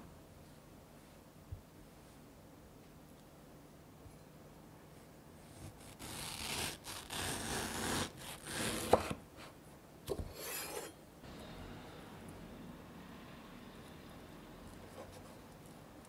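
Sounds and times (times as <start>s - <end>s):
knife slicing through fruit: 5.6s - 9.2s.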